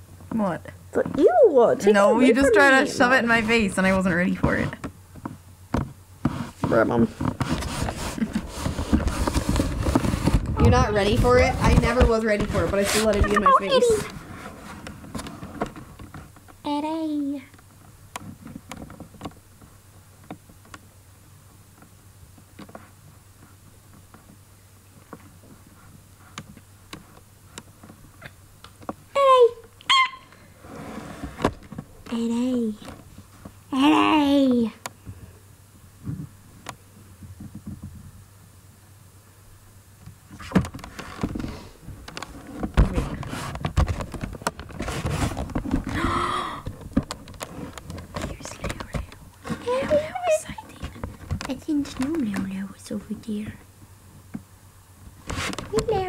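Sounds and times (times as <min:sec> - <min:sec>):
low steady hum: 0:00.0 - 0:56.0
microphone handling bumps and scuffs: 0:05.8 - 0:16.0, 0:36.0 - 0:36.4, 0:37.2 - 0:38.2, 0:40.2 - 0:46.0.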